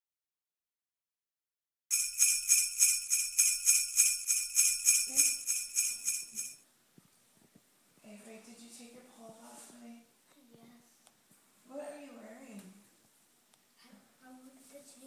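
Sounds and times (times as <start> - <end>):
jingle bells shaken: 1.9 - 6.6.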